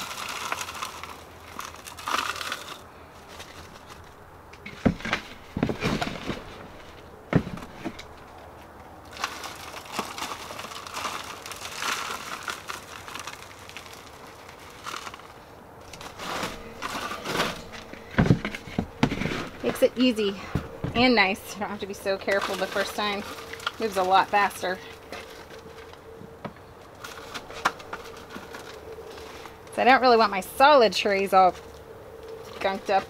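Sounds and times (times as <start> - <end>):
soil pouring and rustling: 0.0 - 4.0, 9.0 - 18.1, 21.8 - 25.9.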